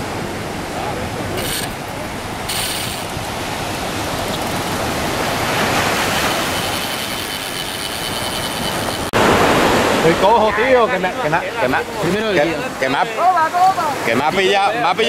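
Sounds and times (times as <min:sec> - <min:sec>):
surf washing: 0:00.0 - 0:15.0
fishing reel clicking: 0:02.5 - 0:03.2, 0:04.0 - 0:04.9, 0:05.7 - 0:09.2.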